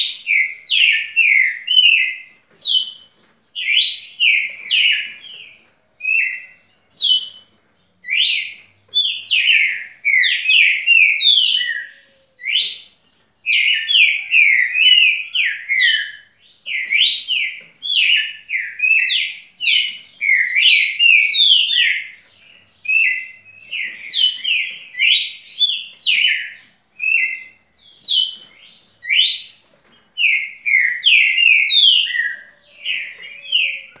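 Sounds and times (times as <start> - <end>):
songbird whistling: 13.6 - 22.2, 30.2 - 34.0.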